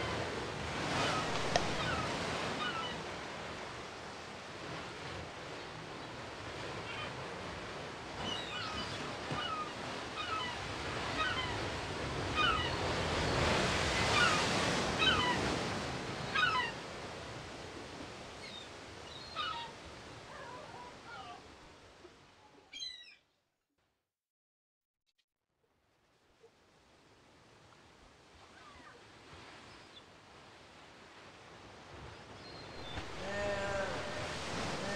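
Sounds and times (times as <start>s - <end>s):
sea waves washing: 0.0s - 22.0s, 27.4s - 34.9s
bird cries: 1.0s - 3.0s, 8.2s - 15.5s, 16.2s - 16.9s, 18.3s - 21.4s, 22.7s - 23.3s, 32.2s - 34.9s.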